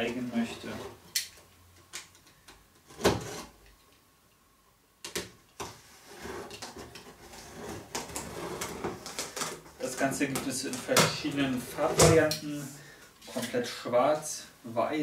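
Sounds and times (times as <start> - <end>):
scraping and rustling on cardboard: 2.8 - 3.6, 5.6 - 10.1.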